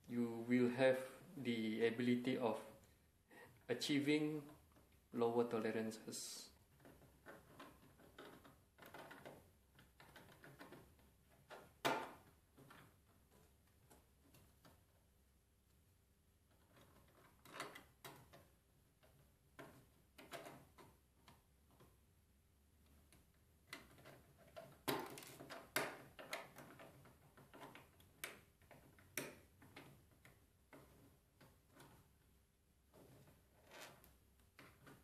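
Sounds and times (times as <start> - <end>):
plastic parts clicking and rattling: 6.7 - 15.0, 16.5 - 22.1, 22.8 - 35.0.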